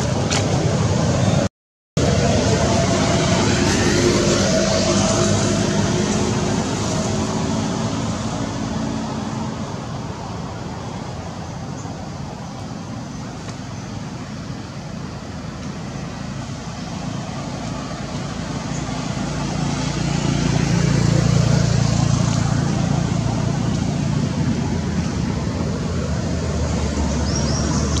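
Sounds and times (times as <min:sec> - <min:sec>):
traffic noise: 0:00.0 - 0:28.0
vehicle engine passing: 0:02.0 - 0:09.7, 0:15.8 - 0:28.0.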